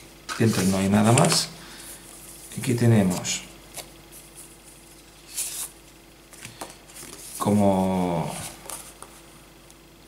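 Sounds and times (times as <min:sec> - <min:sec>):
paper rustling: 0:00.3 - 0:07.6.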